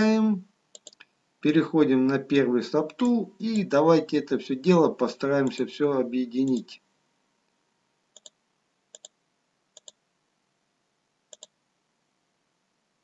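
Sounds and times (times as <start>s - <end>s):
computer mouse clicks: 0.7s - 1.1s, 8.1s - 9.2s, 9.8s - 10.0s, 11.3s - 11.6s.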